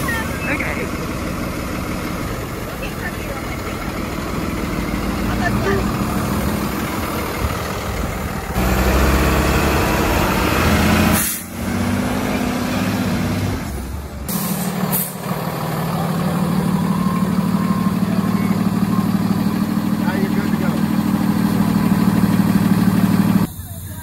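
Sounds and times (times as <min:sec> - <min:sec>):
truck diesel engine running: 0:00.0 - 0:24.0
air hissing: 0:11.0 - 0:11.6, 0:14.3 - 0:15.3.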